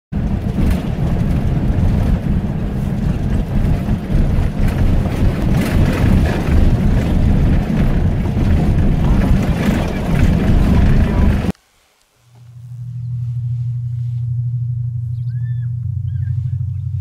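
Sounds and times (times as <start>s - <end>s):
vehicle engine and road rumble: 0.1s - 17.0s
rattles and knocks: 0.2s - 11.5s.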